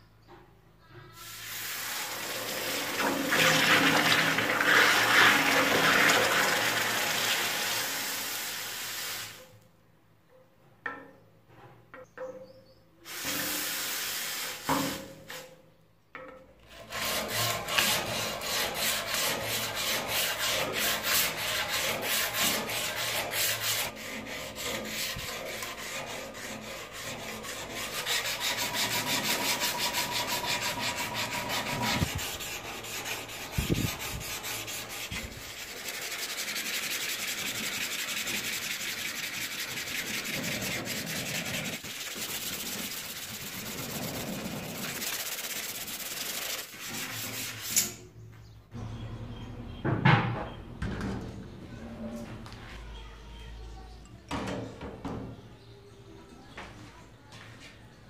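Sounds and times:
abrasive pad scrubbing steel blade: 0:16.7 - 0:48.0.

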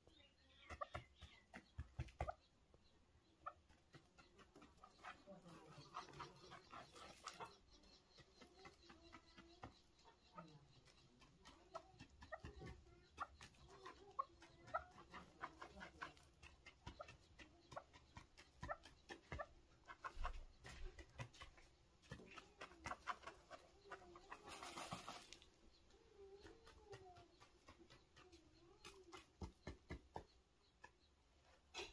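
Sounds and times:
grit and pebbles clicking: 0:06.1 - 0:25.5.

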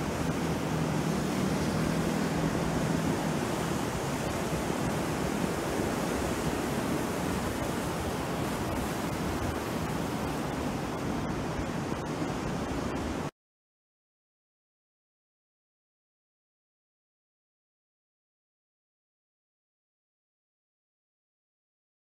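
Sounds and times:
sea surf breaking on beach: 0:00.0 - 0:13.3.

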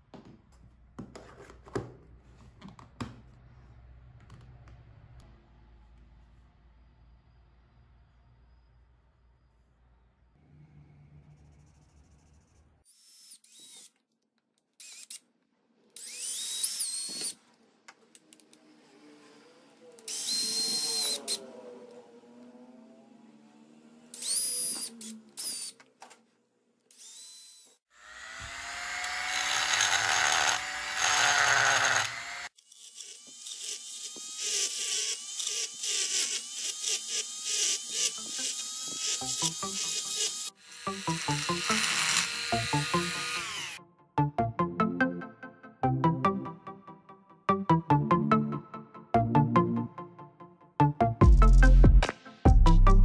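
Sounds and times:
cordless drill drilling plastic pipe: 0:12.9 - 0:14.0, 0:14.8 - 0:15.2, 0:16.0 - 0:17.4, 0:20.0 - 0:21.4, 0:24.1 - 0:25.9, 0:26.9 - 0:43.8
rotary tool whining: 0:15.9 - 0:22.7, 0:24.1 - 0:26.0, 0:26.9 - 0:43.8.

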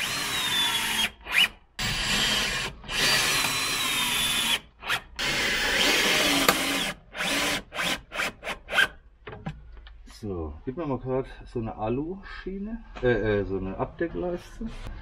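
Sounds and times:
cordless drill motor whine: 0:00.0 - 0:04.6.

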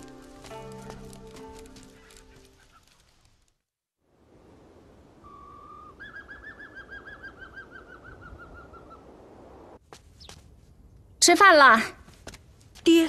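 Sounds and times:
faint night ambience: 0:00.0 - 0:13.0
bird whistle and trill: 0:05.3 - 0:09.0.

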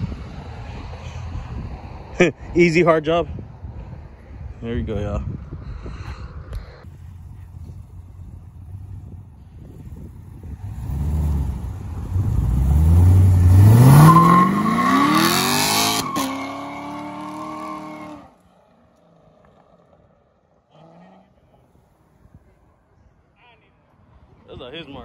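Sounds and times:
car engine accelerating: 0:10.3 - 0:18.3.

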